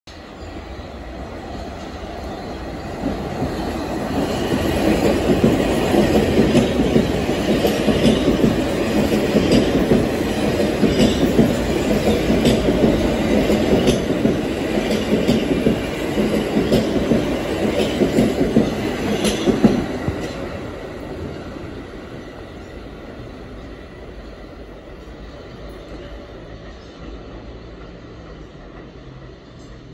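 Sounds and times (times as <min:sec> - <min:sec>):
subway train rumbling past: 0:00.1 - 0:29.9
wheels clicking on rails: 0:03.0 - 0:20.7.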